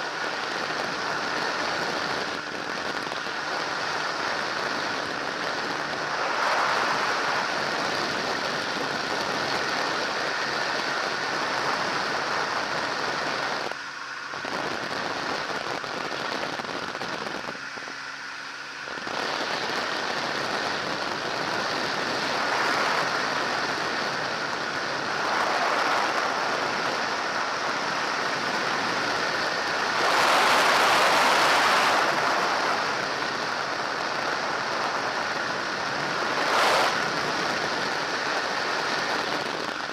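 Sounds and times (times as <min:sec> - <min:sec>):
faint engine drone: 0:00.0 - 0:39.9.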